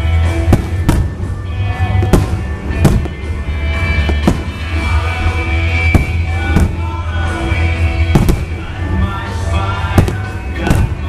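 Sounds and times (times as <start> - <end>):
music playing: 0.0 - 11.0
firework shells bursting: 0.4 - 5.0, 8.1 - 8.8.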